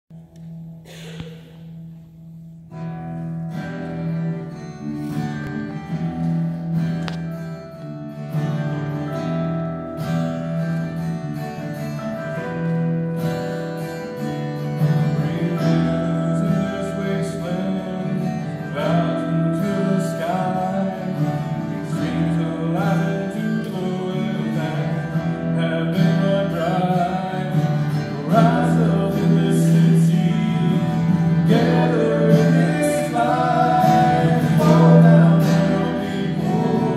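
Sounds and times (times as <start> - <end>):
guitars playing slow song: 0.1 - 36.9
man singing: 15.0 - 36.9.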